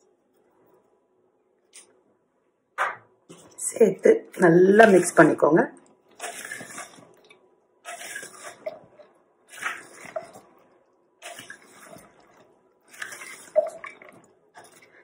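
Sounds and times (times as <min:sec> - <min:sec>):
wet squelching of hand mixing: 0:03.3 - 0:15.0.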